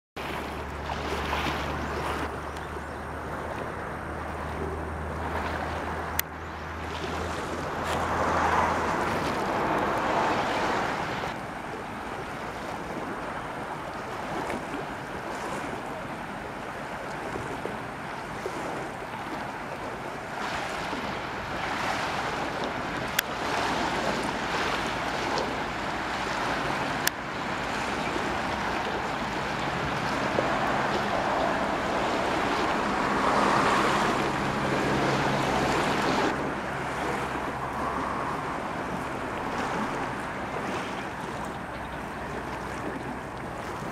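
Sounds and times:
water splashing and lapping: 0:00.2 - 0:43.9
wind buffeting microphone: 0:00.2 - 0:43.9.

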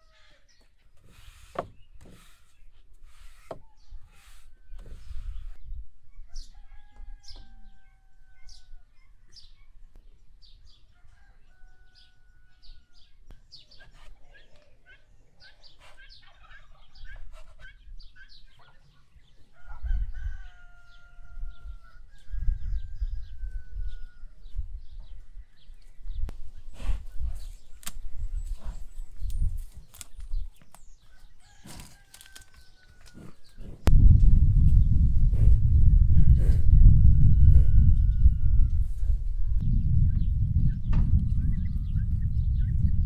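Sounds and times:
small birds chirping: 0:00.0 - 0:34.9
rooster crowing: 0:06.3 - 0:08.8, 0:10.9 - 0:13.1, 0:19.5 - 0:24.4, 0:31.1 - 0:33.4, 0:36.1 - 0:38.9
low rumble: 0:33.8 - 0:43.0.

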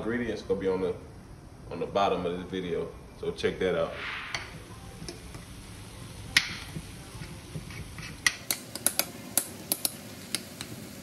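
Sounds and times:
meat sizzling: 0:04.3 - 0:11.0.

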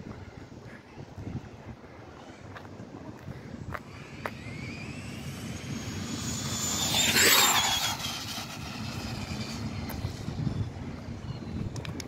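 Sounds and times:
electric motor whine passing: 0:03.7 - 0:11.6.

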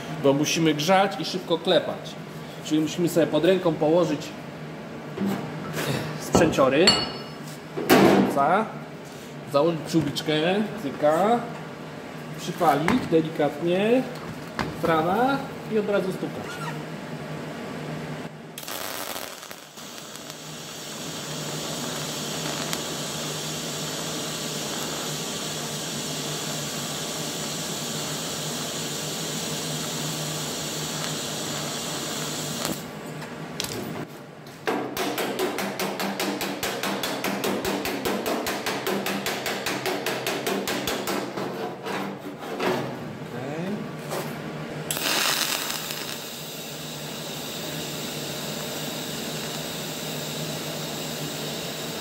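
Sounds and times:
welding arc hissing: 0:18.6 - 0:32.9, 0:44.9 - 0:52.0.

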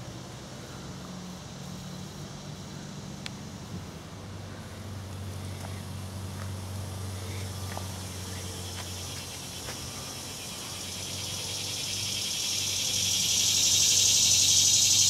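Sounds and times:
insects shrilling: 0:07.0 - 0:15.0.

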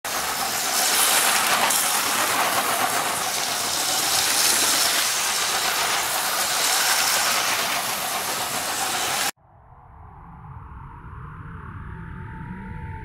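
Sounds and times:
toy train motor whirring: 0:00.1 - 0:09.3.

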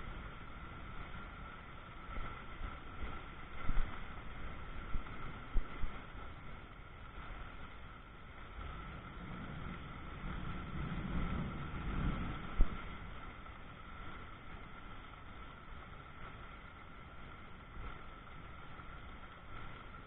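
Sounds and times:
wind buffeting microphone: 0:00.0 - 0:15.1
heavy rain: 0:00.0 - 0:20.0
wind: 0:00.0 - 0:20.0
low thunder rumble: 0:08.8 - 0:13.4.

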